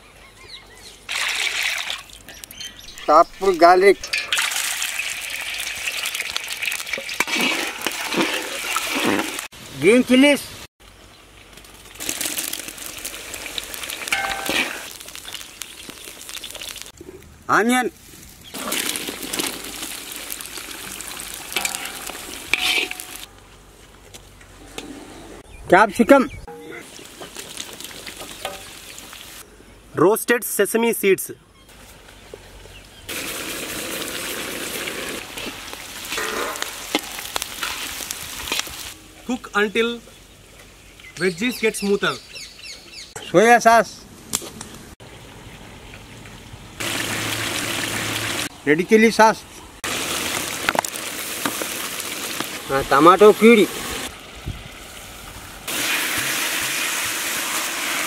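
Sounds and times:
chilies sizzling in hot oil: 0:02.3 - 0:17.0, 0:18.0 - 0:23.3, 0:26.8 - 0:29.4, 0:33.0 - 0:39.4, 0:46.8 - 0:48.5, 0:49.8 - 0:58.0
spatula scraping wok: 0:06.9 - 0:09.5, 0:14.1 - 0:14.9, 0:21.5 - 0:23.3, 0:34.3 - 0:38.8.

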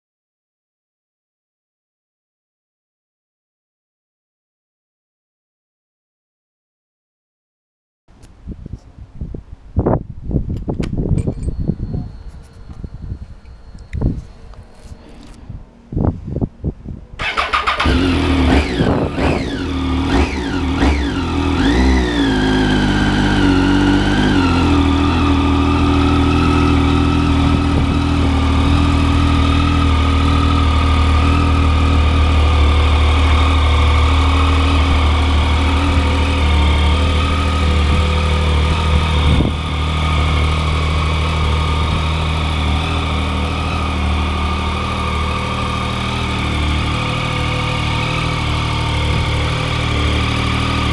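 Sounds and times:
motorcycle engine revving and idling: 0:17.2 - 0:50.9.

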